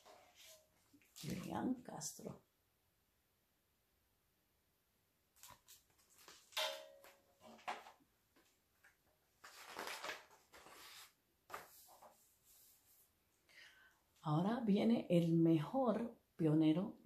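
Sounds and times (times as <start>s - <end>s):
paper page rustle: 5.4s - 6.6s, 9.4s - 13.0s.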